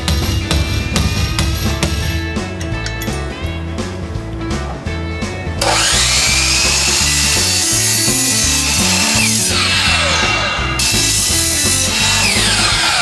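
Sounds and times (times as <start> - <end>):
miter saw motor whine: 5.6 - 13.0
saw blade cutting pipe: 5.6 - 13.0.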